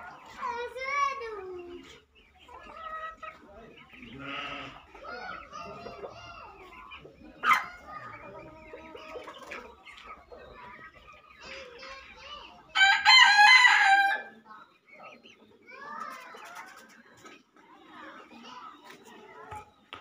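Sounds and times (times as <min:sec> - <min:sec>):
chickens clucking: 0:00.0 - 0:20.0
rooster crowing: 0:12.8 - 0:14.3.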